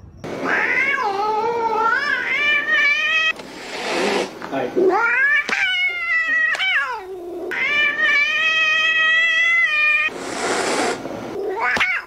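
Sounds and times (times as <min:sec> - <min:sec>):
cat yowling: 0:00.4 - 0:03.4, 0:04.8 - 0:10.1, 0:11.4 - 0:12.0
cat hissing: 0:00.4 - 0:12.0.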